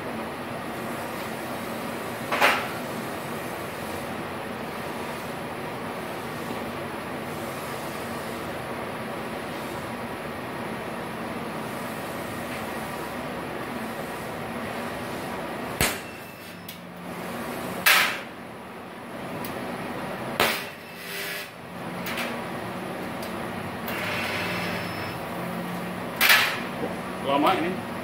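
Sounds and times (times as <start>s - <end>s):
spot welder snaps: 15.7s - 16.8s, 20.4s - 22.3s
welder hum: 20.4s - 21.6s, 23.0s - 25.9s.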